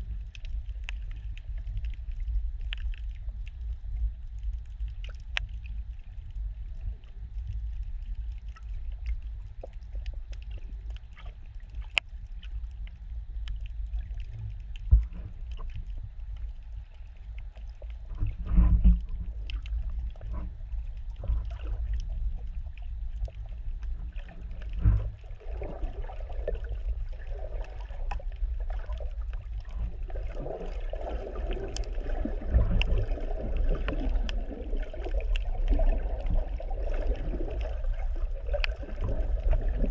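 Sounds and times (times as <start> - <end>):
burbling water: 0.0 - 39.9
underwater low rumble: 0.0 - 39.9
faint clicks: 0.1 - 25.2, 38.5 - 38.8.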